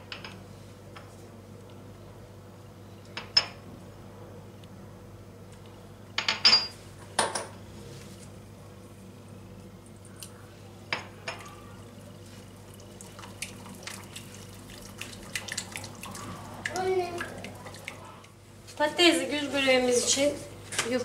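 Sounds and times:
stirring in a bowl: 0:11.3 - 0:18.4.

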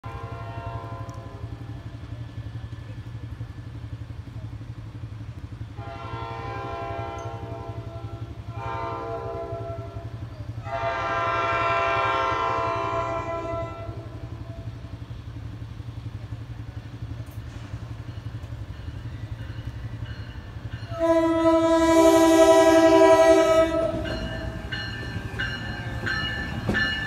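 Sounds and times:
train horn blasts: 0:00.0 - 0:01.7, 0:05.7 - 0:15.0, 0:20.8 - 0:25.0
low train rumble: 0:00.0 - 0:27.0.

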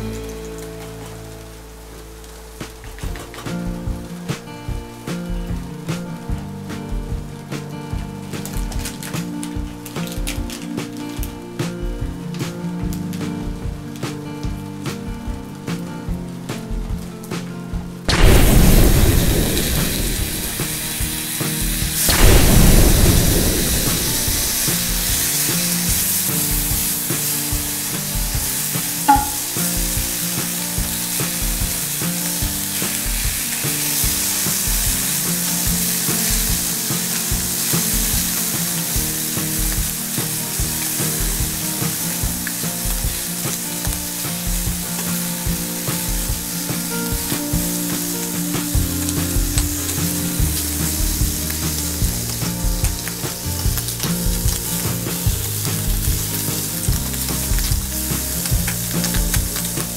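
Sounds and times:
bacon sizzling in frying pan: 0:18.1 - 0:59.9.

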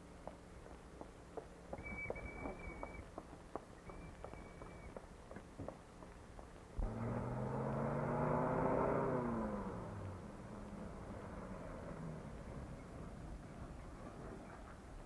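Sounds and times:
faint footstep taps: 0:00.2 - 0:06.6
pickup truck engine passing: 0:06.8 - 0:14.8.

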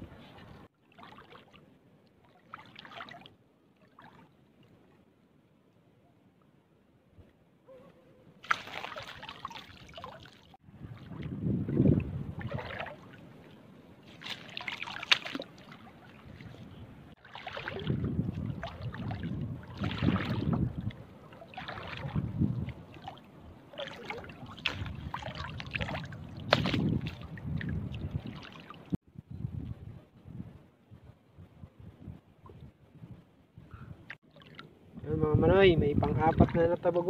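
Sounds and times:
seawater sloshing and splashing: 0:00.2 - 0:05.0, 0:08.4 - 0:29.0, 0:34.2 - 0:34.8, 0:36.0 - 0:37.0.

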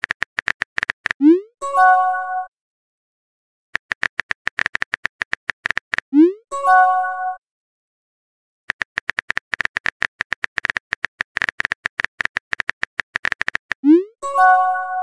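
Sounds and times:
phone keyboard typing clicks: 0:00.0 - 0:01.2, 0:03.8 - 0:06.1, 0:08.7 - 0:13.9.

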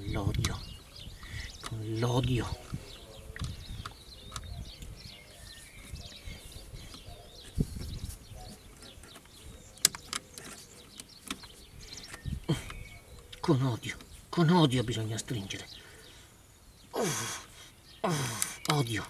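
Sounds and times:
birds chirping: 0:00.0 - 0:19.0.

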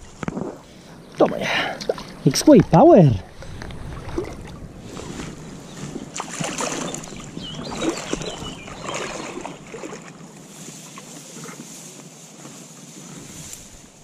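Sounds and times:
water splashing and sloshing: 0:00.0 - 0:11.7
reeds rustling: 0:09.0 - 0:14.0.

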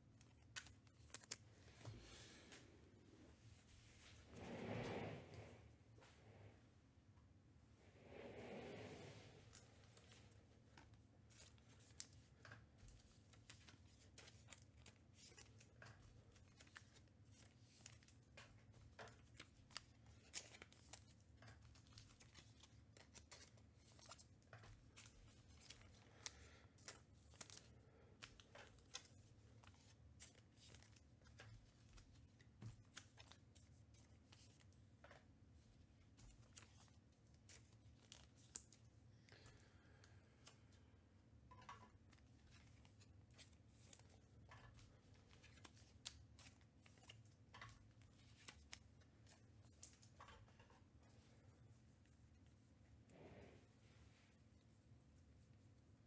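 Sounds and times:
cards rustling and clicking: 0:00.0 - 0:02.7, 0:09.4 - 0:40.8, 0:41.5 - 0:51.4
low room hum: 0:00.0 - 0:56.0.

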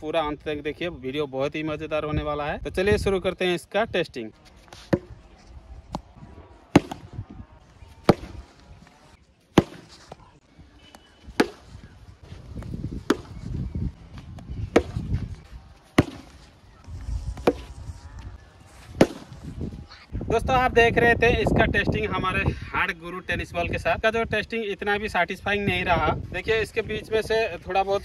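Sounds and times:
cricket bat striking ball: 0:06.7 - 0:07.1, 0:08.0 - 0:08.5, 0:09.6 - 0:10.1, 0:11.0 - 0:11.8, 0:13.0 - 0:13.4, 0:14.7 - 0:15.1, 0:16.0 - 0:16.4, 0:17.4 - 0:17.8, 0:19.0 - 0:19.4.

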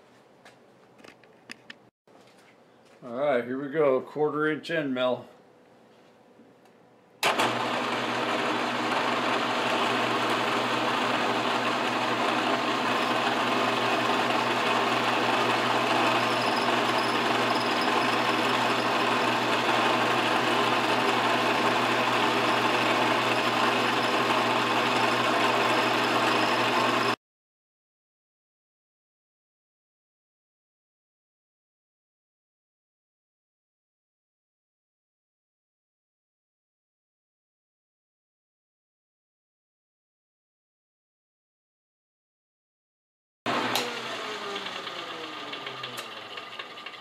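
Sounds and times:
milling machine cutting metal: 0:07.2 - 0:27.2, 0:43.5 - 0:47.0.

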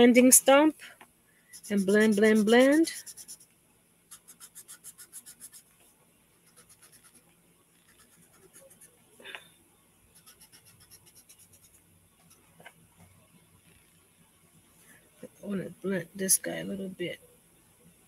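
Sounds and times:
blending stump rubbing on paper: 0:01.6 - 0:03.5.

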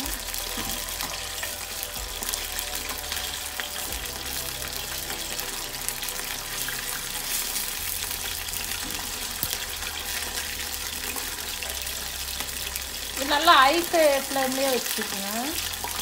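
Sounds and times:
chicken sizzling in hot oil: 0:00.0 - 0:16.0.

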